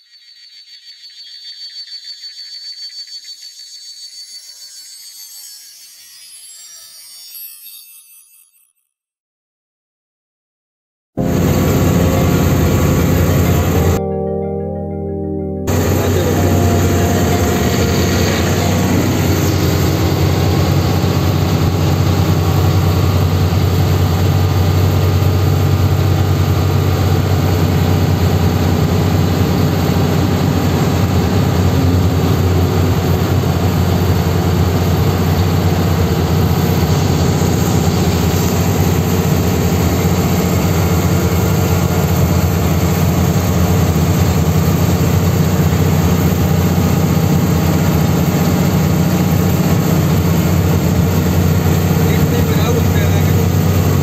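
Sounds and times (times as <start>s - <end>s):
road noise: 11.2s - 14.0s, 15.7s - 54.0s
truck diesel engine drone: 11.2s - 54.0s.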